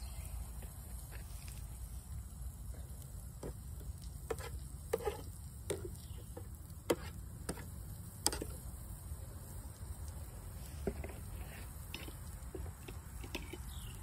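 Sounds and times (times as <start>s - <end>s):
fork scraping a frying pan: 4.3s - 6.0s, 6.9s - 8.5s, 10.8s - 14.0s.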